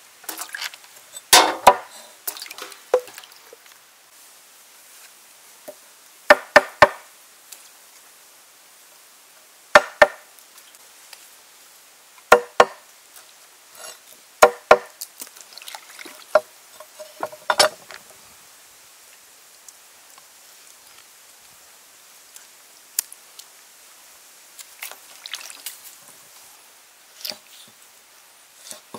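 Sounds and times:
cleaver chopping on wooden board: 0:01.4 - 0:01.9, 0:06.3 - 0:07.0, 0:09.8 - 0:10.2, 0:12.3 - 0:12.8, 0:14.4 - 0:14.9.

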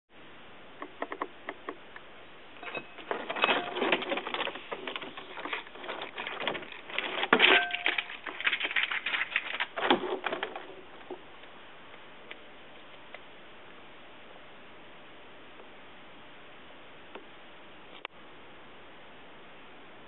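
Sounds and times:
lizard eating clicks and scratches: 0:03.8 - 0:09.8.

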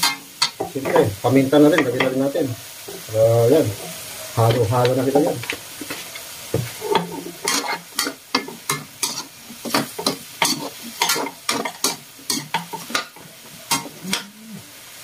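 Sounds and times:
faint frying sizzle: 0:00.0 - 0:15.0
metal spoon scraping a wok: 0:06.8 - 0:14.3.

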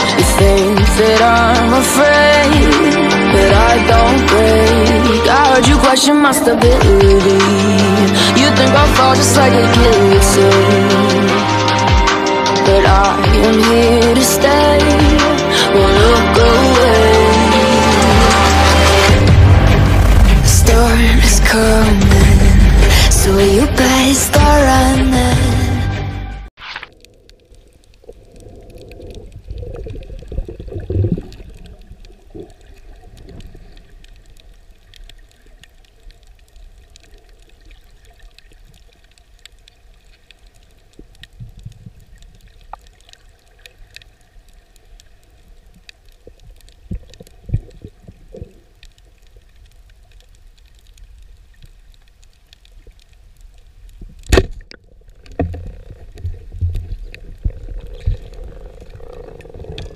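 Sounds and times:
underwater water rumble: 0:17.4 - 0:25.6, 0:26.6 - 0:59.9
faint clicks: 0:26.6 - 0:59.9.

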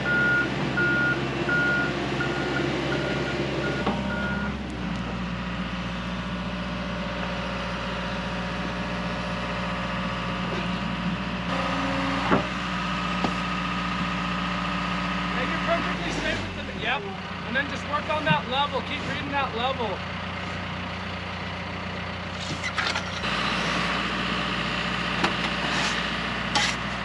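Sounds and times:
warning alarm beeping: 0:00.0 - 0:04.5
excavator diesel engine running: 0:00.0 - 0:27.0.

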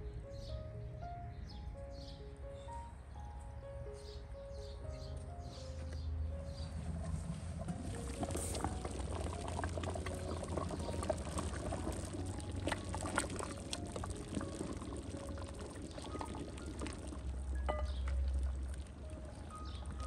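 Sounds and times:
broth bubbling in metal pot: 0:06.8 - 0:20.0
wooden spoon stirring and sloshing: 0:06.8 - 0:20.0.

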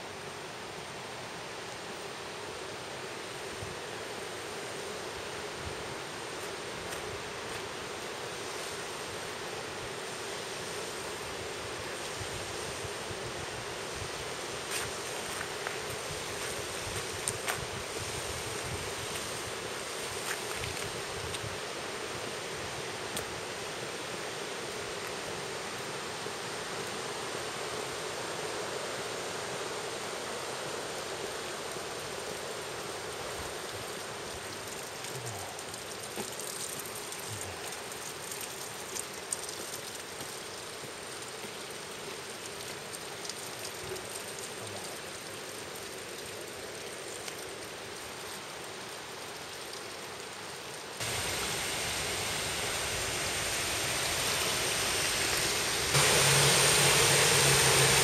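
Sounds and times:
running water rushing: 0:00.0 - 0:58.0.

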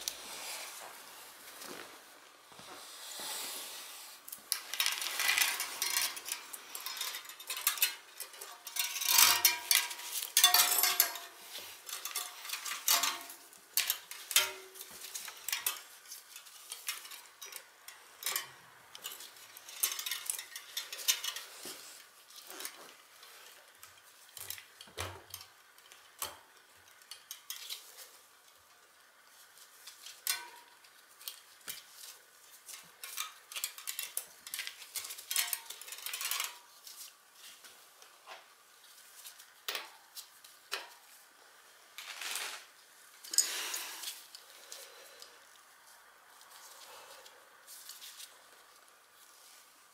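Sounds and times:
chain and metal tools clinking: 0:04.6 - 0:15.8.

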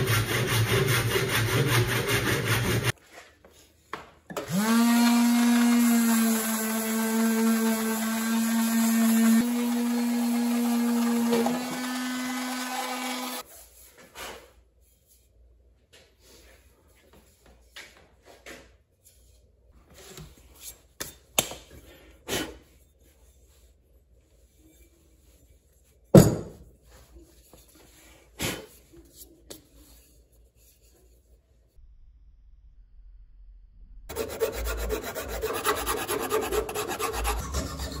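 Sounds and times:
electric sander whining: 0:04.4 - 0:13.4
hatchet head knocking on workbench: 0:26.2 - 0:26.6.

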